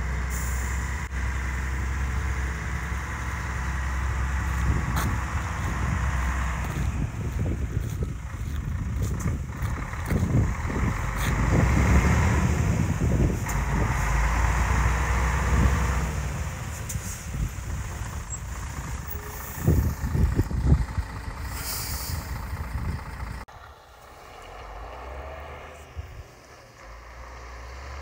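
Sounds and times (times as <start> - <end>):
diesel truck driving past: 0.0 - 28.0
steady low rumble: 1.0 - 14.1, 16.3 - 24.0.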